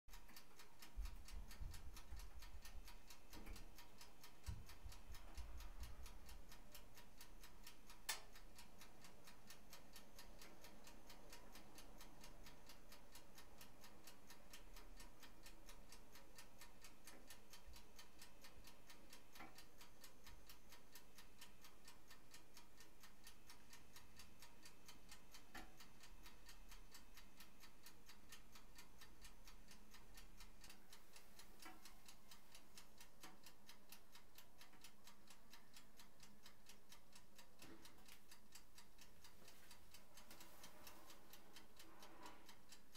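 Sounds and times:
clockwork timer ticking: 0.1s - 42.9s.

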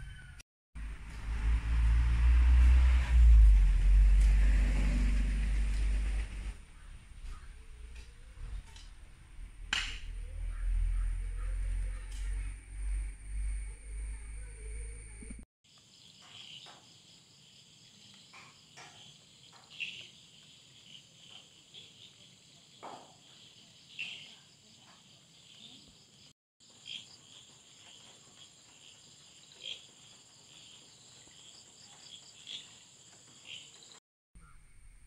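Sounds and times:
crickets chirping: 10.7s - 35.0s.

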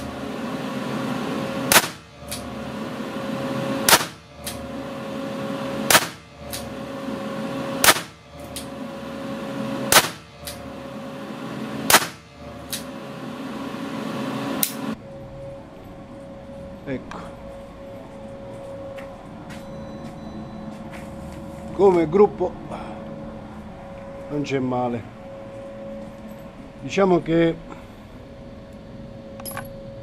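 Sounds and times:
extractor fan hum: 0.0s - 30.0s
revolver shots: 1.7s - 2.5s, 3.8s - 4.6s, 5.9s - 6.7s, 7.8s - 8.2s, 9.9s - 10.6s, 11.8s - 12.2s.

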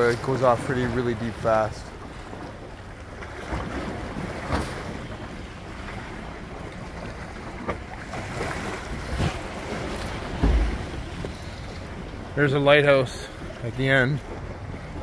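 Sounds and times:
waves washing against rocks: 0.0s - 15.0s
wind buffeting microphone: 0.0s - 15.0s
short thumps: 10.0s - 11.4s.

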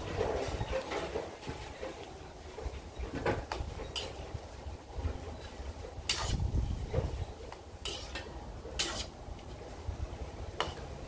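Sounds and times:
metal spatula scraping a wok: 3.8s - 9.6s, 10.6s - 11.0s.

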